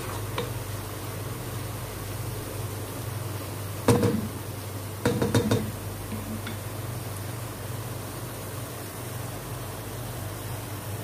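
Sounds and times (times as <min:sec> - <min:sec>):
onions sizzling in oil: 0:00.0 - 0:11.0
wooden spoon knocking pot: 0:03.9 - 0:04.3, 0:05.0 - 0:06.6.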